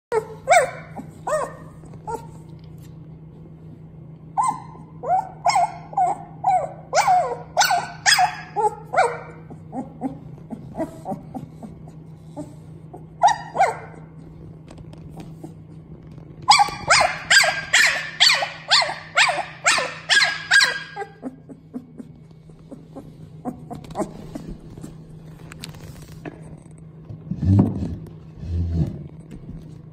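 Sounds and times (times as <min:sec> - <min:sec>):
puppy yipping and crying: 0:00.1 - 0:02.4, 0:04.4 - 0:14.0, 0:16.5 - 0:25.0
faint steady hum: 0:00.1 - 0:29.9.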